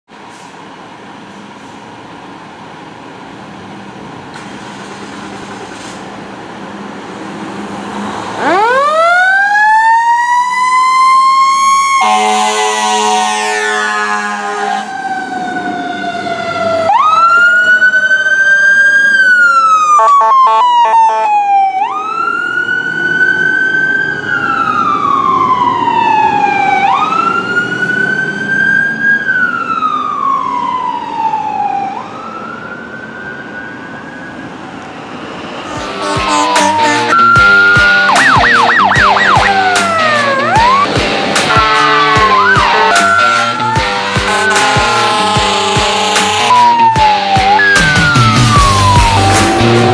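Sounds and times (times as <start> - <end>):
electronic siren wailing: 8.4 - 49.9
air horn blast: 12.0 - 15.0, 20.0 - 21.3, 35.6 - 46.8
music: 35.8 - 49.9.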